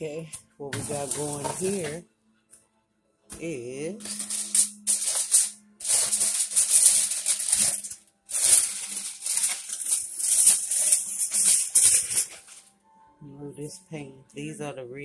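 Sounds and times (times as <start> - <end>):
foil crinkling: 0.8 - 2.0, 4.0 - 12.7.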